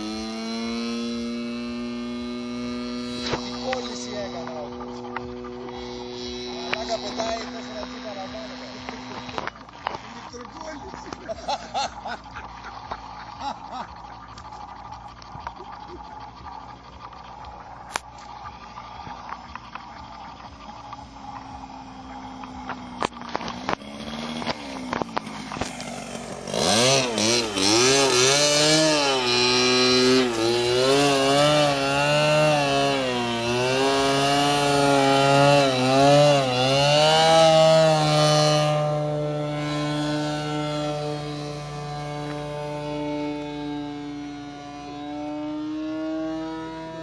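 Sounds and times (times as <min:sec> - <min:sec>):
model airplane engine: 0:00.0 - 0:47.0.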